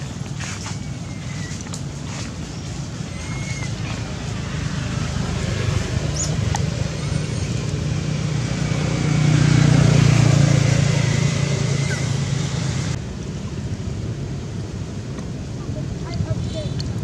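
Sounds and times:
passing vehicle engine hum: 0.0 - 13.6
outdoor background noise: 0.0 - 17.0.

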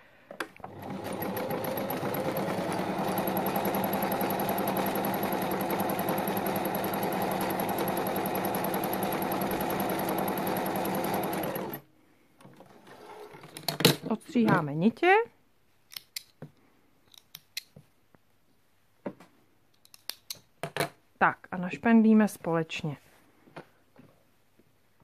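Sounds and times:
electric sewing machine stitching: 0.6 - 11.8.

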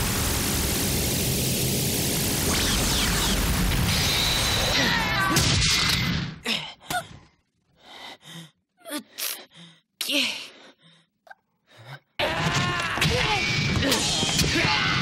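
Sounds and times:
gasps and grunts: 6.4 - 12.2.

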